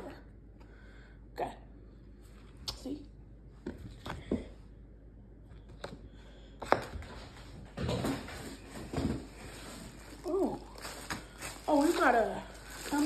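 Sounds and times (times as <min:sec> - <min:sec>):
plastic wrapping rustling: 0:07.8 - 0:13.0.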